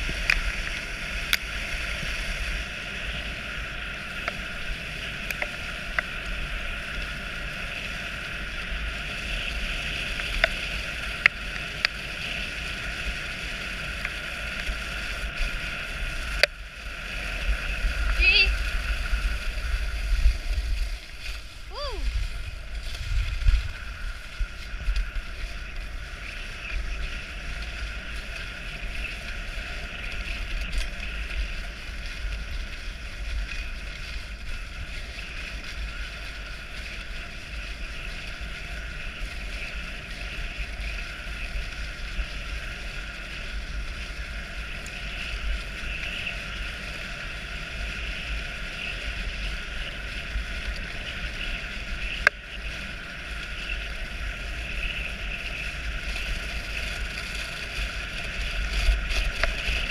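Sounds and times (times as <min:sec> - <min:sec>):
sled runners hissing on snow: 0:00.0 - 0:59.9
wind rumble on microphone: 0:00.0 - 0:59.9.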